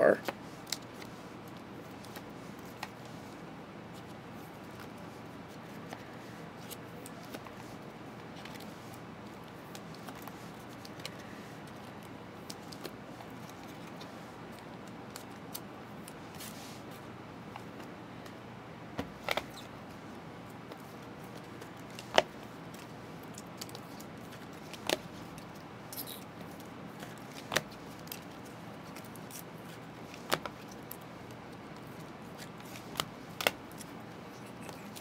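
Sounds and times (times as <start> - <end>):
trading cards rustling and clicking: 3.9 - 16.6, 20.6 - 35.0.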